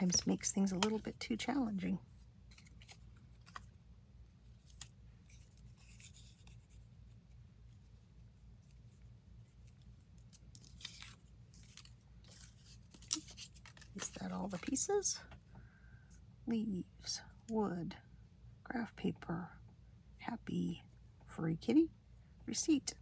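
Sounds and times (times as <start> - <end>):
low steady hum: 0.0 - 23.0.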